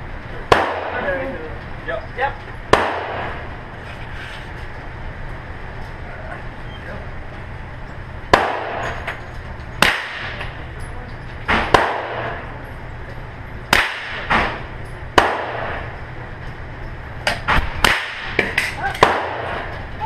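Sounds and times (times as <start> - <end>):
pistol shots echoing: 0.5 - 1.0, 2.7 - 3.4, 8.3 - 8.9, 9.8 - 10.5, 11.5 - 12.4, 13.7 - 15.9, 17.8 - 19.7.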